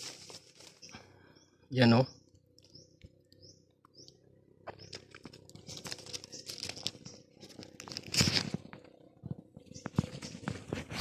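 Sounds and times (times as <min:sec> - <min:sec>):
leaves and twigs rustling: 0:00.0 - 0:01.1, 0:04.7 - 0:11.0
bird chirping: 0:00.7 - 0:07.9, 0:08.9 - 0:10.7.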